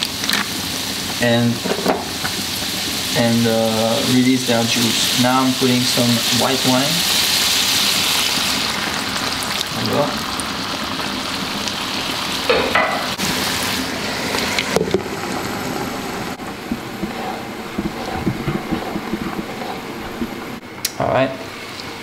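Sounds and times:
wine sizzling in frying pan: 0.0 - 20.6
stirring clicks: 16.4 - 20.6.

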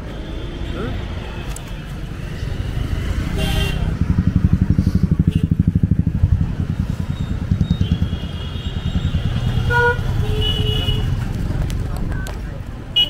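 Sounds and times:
street traffic: 0.0 - 13.0
motorcycle engine throbbing: 2.0 - 11.9.

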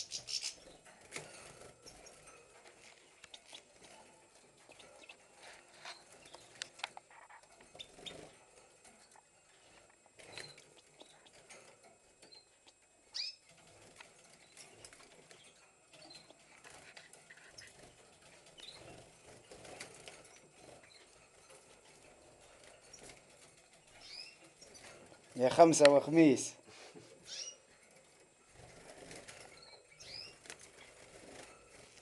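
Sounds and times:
bird chirps: 0.0 - 0.8, 4.7 - 6.6, 12.2 - 13.5, 18.5 - 19.1, 23.8 - 25.0, 27.2 - 27.7, 29.4 - 30.9
bird wing flutter and scuffling: 13.5 - 32.0.

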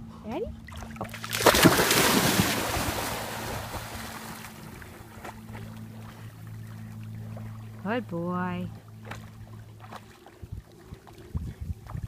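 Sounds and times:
water sounds of dog swimming: 0.5 - 7.9, 8.6 - 12.0
dog splashing into water: 0.7 - 5.6.

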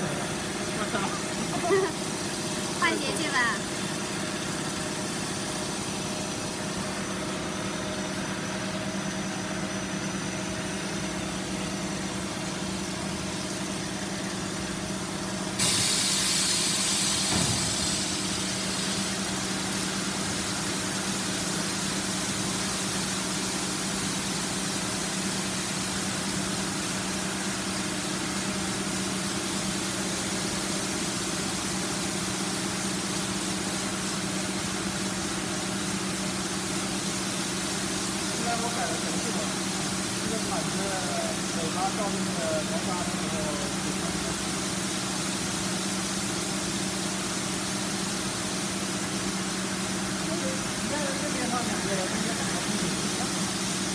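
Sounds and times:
water jets spraying: 15.6 - 25.7, 35.4 - 53.9.

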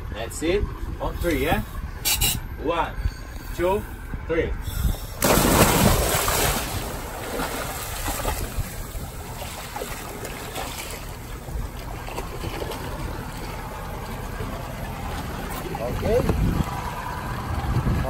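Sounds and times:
sea rushing around boat: 0.0 - 18.0
loud splash into water: 5.2 - 8.8
churning water: 5.2 - 18.0.

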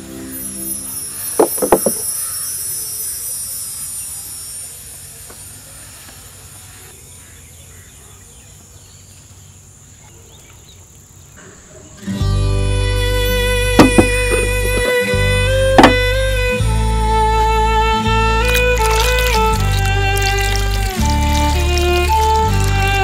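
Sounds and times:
insects chirring: 0.0 - 12.2, 12.9 - 23.0
plate set down on wooden table: 1.4 - 2.0.

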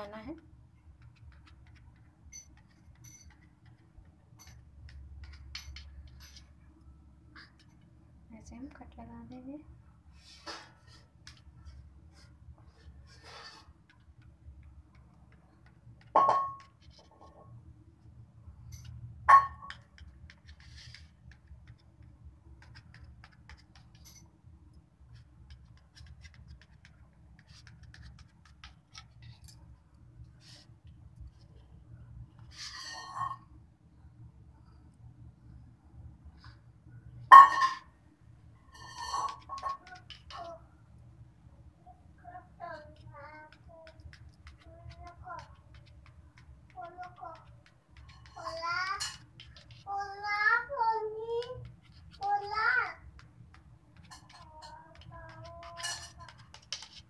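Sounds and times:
low steady hum: 0.0 - 57.0
knife scraping steel plate: 32.5 - 33.4, 38.7 - 39.8, 55.7 - 56.9
knife scratching on sweet: 53.5 - 57.0.

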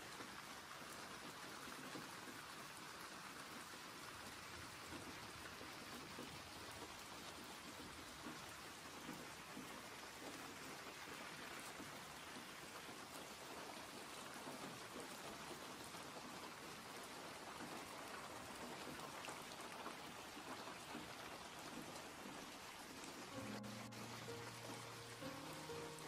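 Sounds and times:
faint crackling hiss: 4.3 - 26.0
background music: 23.3 - 26.0.

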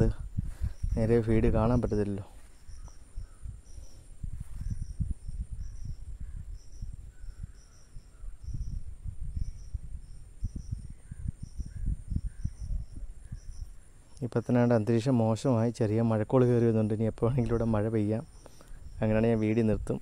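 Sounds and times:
low rumbling on microphone: 0.0 - 14.0
insect chirping: 0.0 - 20.0.

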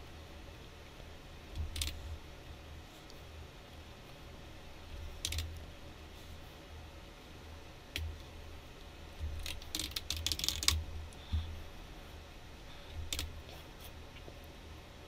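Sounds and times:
faint low hum: 0.0 - 15.0
keyboard typing: 5.2 - 5.6, 9.4 - 10.8.

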